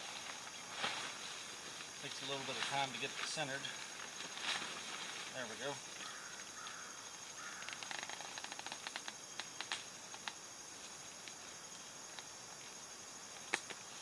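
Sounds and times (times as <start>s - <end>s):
tent fabric rustling: 0.0s - 6.2s
tent fittings clicking: 7.6s - 10.4s.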